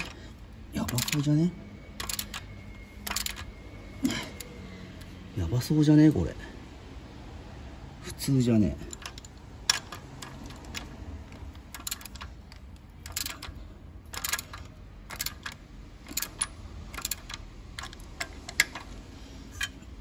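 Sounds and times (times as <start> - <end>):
socket wrench clicking and rattling: 0.0 - 1.3, 2.0 - 5.1, 8.9 - 20.0.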